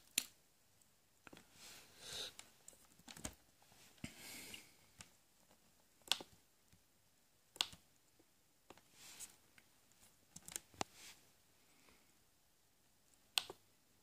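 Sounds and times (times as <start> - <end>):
soft rustle: 1.4 - 2.9, 3.5 - 5.6, 8.8 - 12.1
mouse and keyboard clicks: 6.0 - 6.4, 7.5 - 7.8, 10.3 - 10.9, 13.3 - 13.6.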